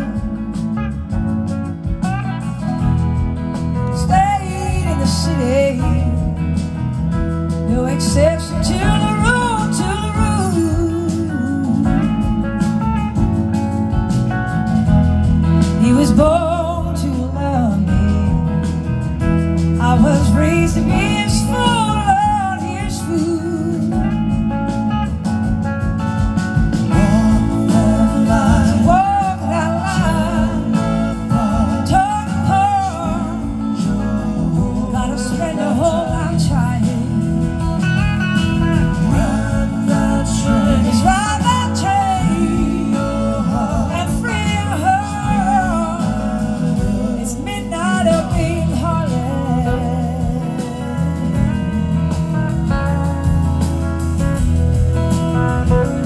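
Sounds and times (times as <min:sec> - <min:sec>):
live band playing soul-blues: 0:00.0 - 0:56.0
woman singing with vibrato: 0:03.8 - 0:06.6, 0:07.7 - 0:12.8, 0:15.8 - 0:18.6, 0:19.8 - 0:24.6, 0:26.9 - 0:52.2.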